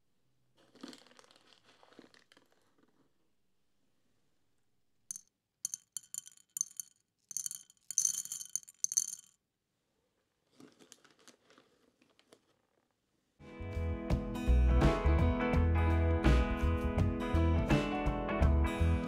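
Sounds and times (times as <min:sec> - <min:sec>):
dried beans rattling in dish: 0:00.6 - 0:03.0, 0:05.1 - 0:09.4, 0:10.5 - 0:12.6.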